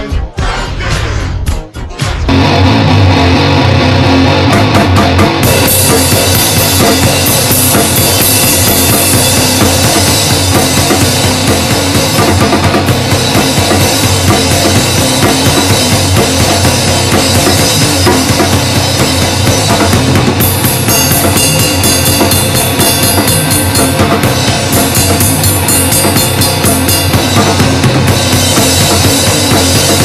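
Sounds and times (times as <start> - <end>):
dense band sound: 0.0 - 30.0
pounding drum kit: 0.0 - 30.0.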